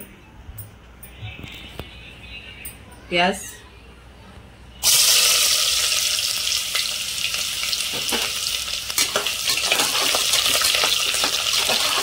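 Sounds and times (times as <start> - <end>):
onions sizzling in hot oil: 4.8 - 12.0.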